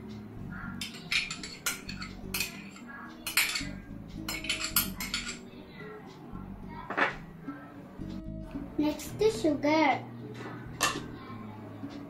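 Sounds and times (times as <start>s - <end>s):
spoon clinking against a bowl: 0.7s - 5.4s.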